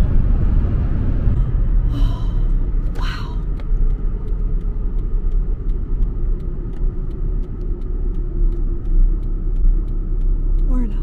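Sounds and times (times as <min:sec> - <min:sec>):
car interior road rumble: 0:00.0 - 0:11.0.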